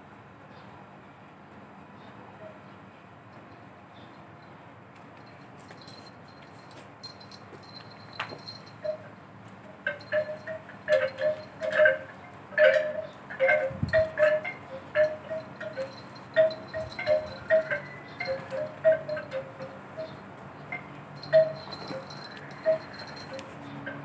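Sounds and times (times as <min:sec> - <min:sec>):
wind chime ringing: 0:05.3 - 0:09.1, 0:09.8 - 0:23.5.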